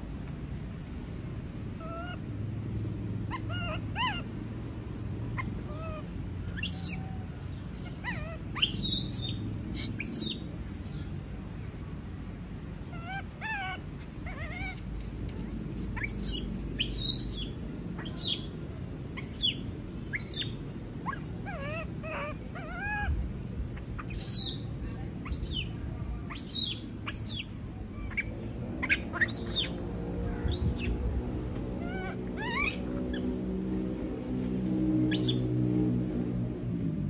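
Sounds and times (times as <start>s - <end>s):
baby monkey screaming: 1.8s - 2.3s, 3.3s - 4.3s, 5.4s - 10.5s, 12.9s - 14.9s, 15.9s - 18.5s, 19.2s - 23.2s, 23.8s - 31.0s, 31.7s - 33.4s, 35.1s - 35.5s
lower wavering monkey calls: 1.8s - 2.3s, 3.2s - 4.4s, 5.3s - 10.5s, 12.8s - 14.9s, 15.9s - 33.6s, 35.0s - 35.6s.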